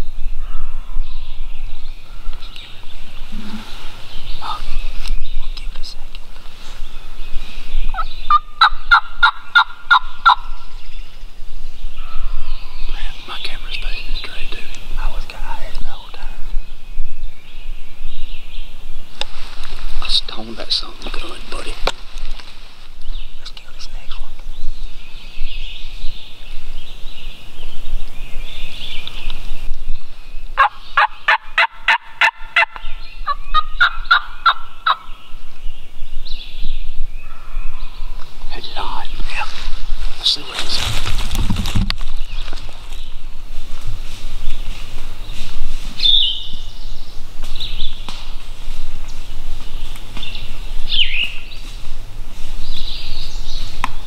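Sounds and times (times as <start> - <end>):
wild turkey yelping: 7.9 - 10.6, 30.6 - 35.1.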